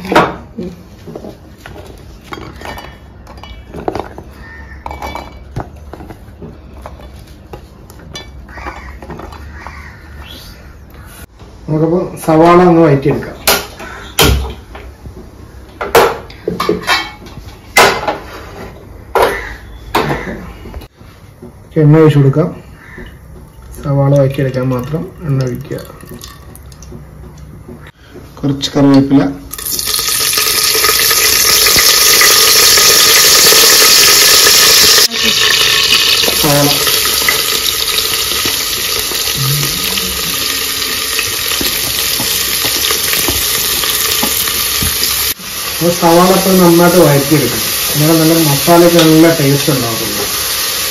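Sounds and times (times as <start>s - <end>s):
onions sizzling in hot oil: 29.5s - 50.9s.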